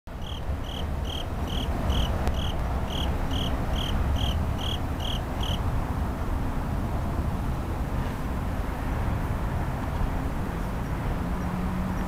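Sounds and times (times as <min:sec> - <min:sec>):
insect chirping: 0:00.2 - 0:05.6.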